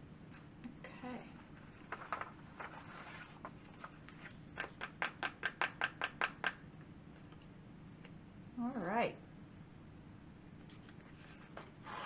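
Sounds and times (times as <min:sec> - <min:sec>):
paper rustling: 0:01.4 - 0:04.4
hand tapping on paper: 0:04.6 - 0:06.6.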